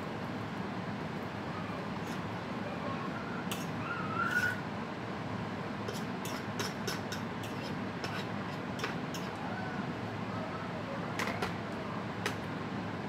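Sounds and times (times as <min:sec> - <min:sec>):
low background hum: 0:00.0 - 0:13.0
short high wavering squeak: 0:03.8 - 0:04.6
fork clicking against ceramic bowl: 0:05.9 - 0:09.4.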